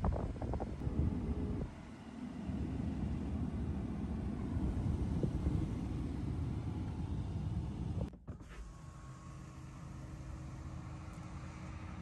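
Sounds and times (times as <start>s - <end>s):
low rumbling in car cabin: 0.0s - 9.2s.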